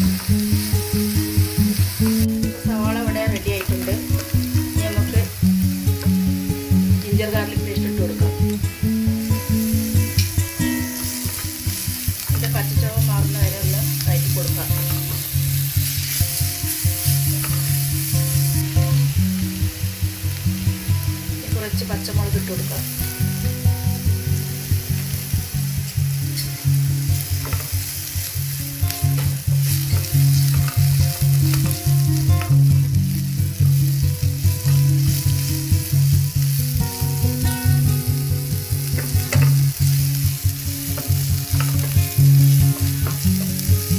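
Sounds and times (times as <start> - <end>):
background music with steady beat: 0.0 - 43.9
onions sizzling in oil: 0.0 - 43.9.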